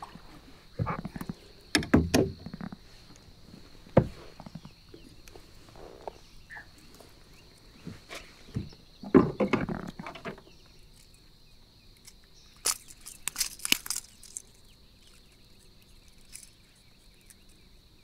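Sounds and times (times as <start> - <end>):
knocks and thumps on kayak: 0.8 - 2.8, 8.5 - 10.5.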